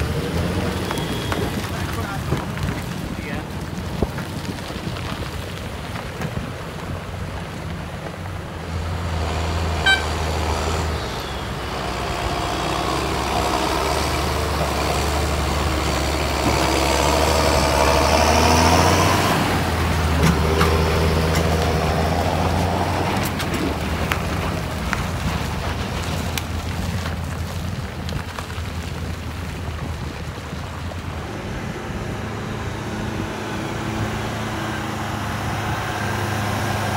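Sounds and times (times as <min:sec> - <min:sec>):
tractor diesel engine droning: 0:00.0 - 0:36.9
tyres churning through mud: 0:00.0 - 0:36.9.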